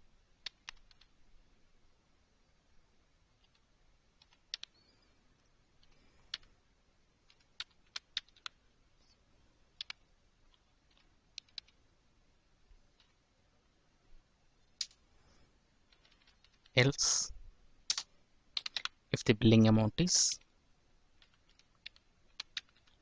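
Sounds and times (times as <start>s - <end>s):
faint keyboard typing: 0.4s - 1.3s, 3.3s - 11.9s, 12.7s - 13.2s, 14.6s - 17.2s, 17.8s - 23.0s.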